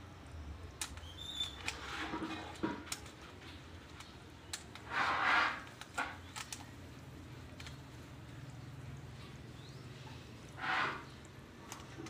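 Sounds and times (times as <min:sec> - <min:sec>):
puzzle cube layers clicking: 0:05.6 - 0:06.8.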